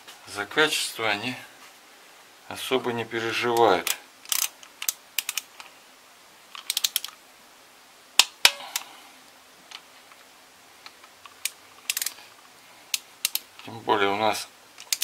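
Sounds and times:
ratchet driver clicking: 4.3 - 5.5, 6.6 - 7.1, 11.4 - 12.2, 14.8 - 15.0.

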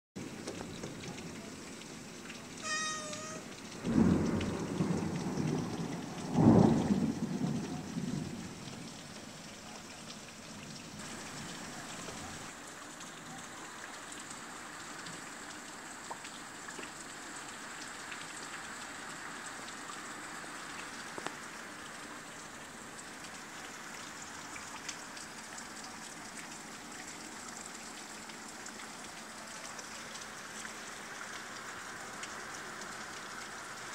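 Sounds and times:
rain on window: 0.2 - 33.9
cat meowing: 2.6 - 3.5
thunder rumbling: 3.2 - 9.0.

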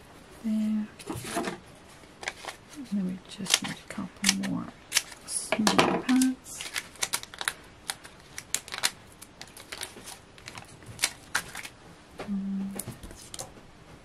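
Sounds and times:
paper rustling: 1.0 - 2.8, 6.1 - 11.8, 12.8 - 13.6.

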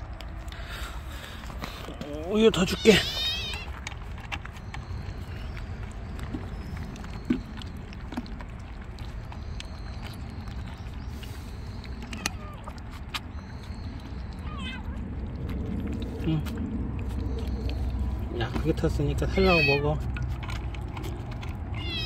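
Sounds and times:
kittens crunching dry kibble: 0.0 - 22.0
steady low rumble: 3.2 - 19.4.

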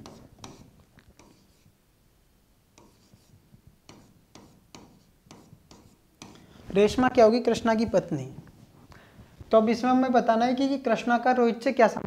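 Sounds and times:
stylus tapping and scratching screen: 0.0 - 1.7, 2.7 - 8.8.

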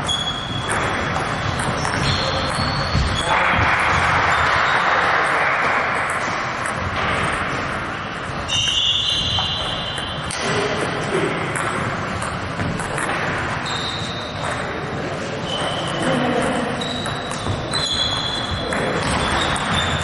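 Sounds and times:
table tennis ball bouncing: 0.0 - 10.8, 11.4 - 14.8, 15.4 - 20.0
background chatter: 14.3 - 17.8.

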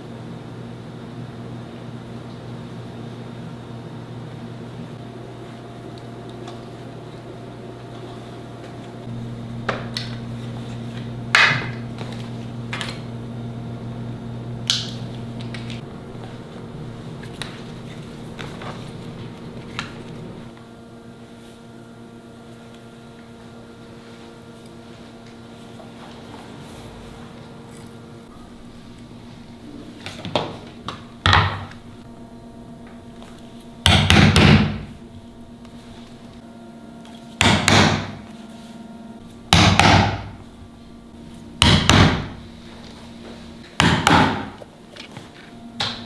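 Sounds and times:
low machine hum: 0.0 - 46.0.

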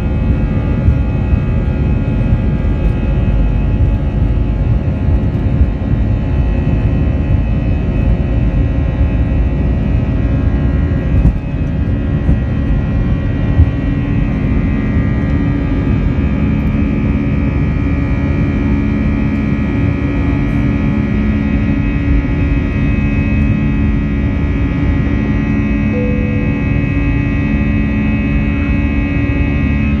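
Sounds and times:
high engine whine: 0.0 - 30.0
jet engines roaring in cabin: 0.0 - 30.0.

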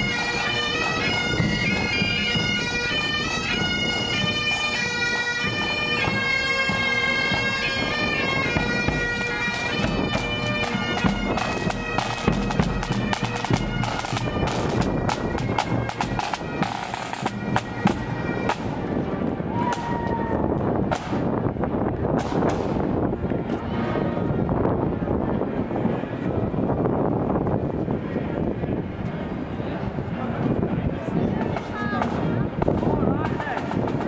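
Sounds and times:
bagpipes playing a tune: 0.0 - 19.5.

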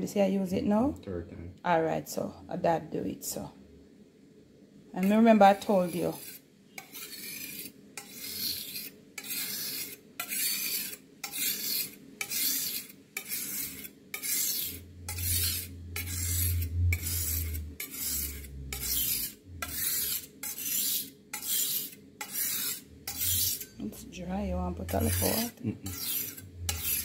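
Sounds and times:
knife rasping on whetstone: 5.0 - 23.8, 24.8 - 27.0.

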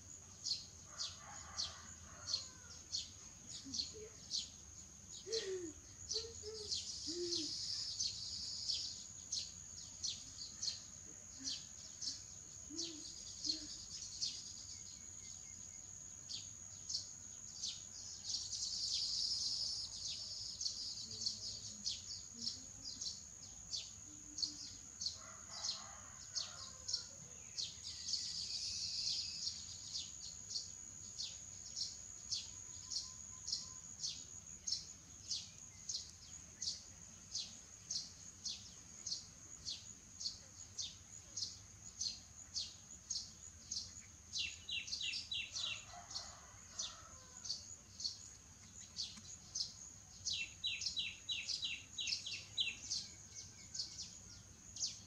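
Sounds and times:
high-pitched insect whine: 18.2 - 48.1.

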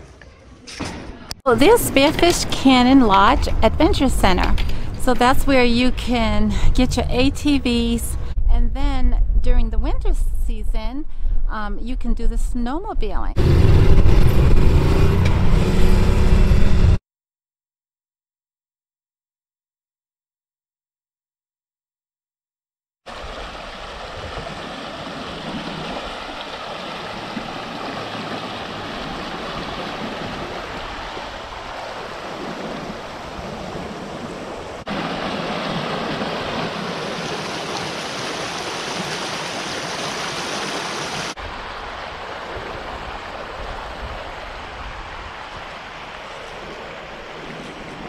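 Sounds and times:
stream water rushing: 23.1 - 48.0.

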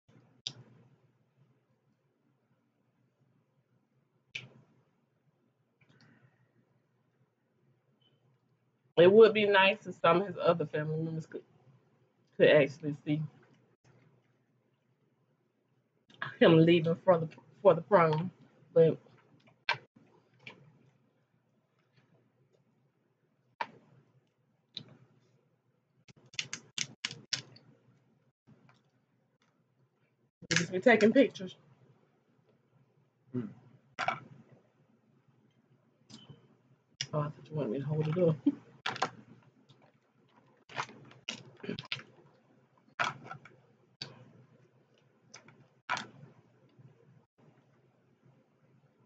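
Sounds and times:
seafood shells crackling and snapping: 26.1 - 27.6.

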